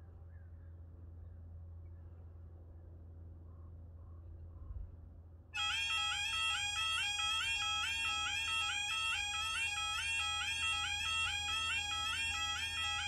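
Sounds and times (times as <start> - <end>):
level crossing alarms: 5.6 - 13.0.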